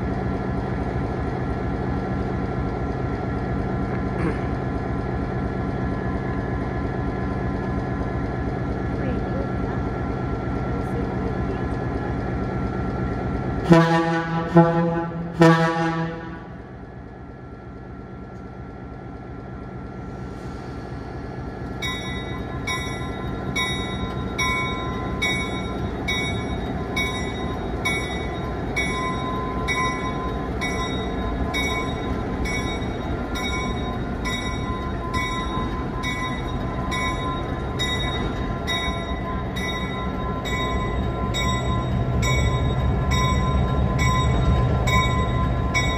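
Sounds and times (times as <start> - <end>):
diesel locomotive engine running: 0.0 - 45.9
air horn blasts: 13.6 - 16.6.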